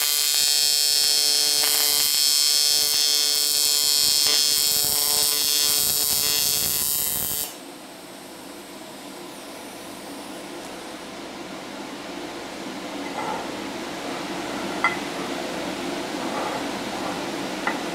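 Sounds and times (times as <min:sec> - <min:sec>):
welding arc buzzing: 0:00.0 - 0:07.7.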